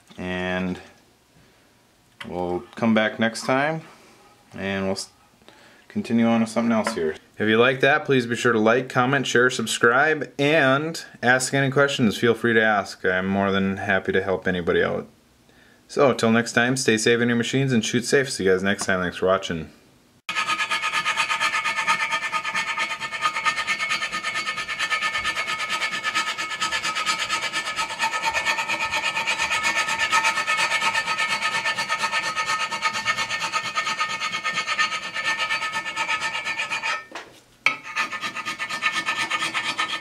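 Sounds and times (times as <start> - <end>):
scrubbing rusty metal: 20.3 - 37.1, 37.7 - 40.0.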